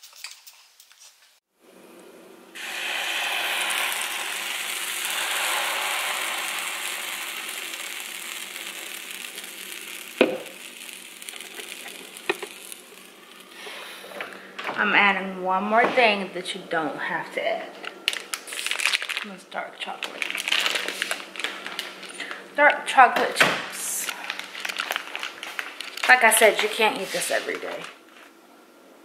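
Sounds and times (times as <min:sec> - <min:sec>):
batter sizzling in waffle iron: 0:02.5 - 0:14.1.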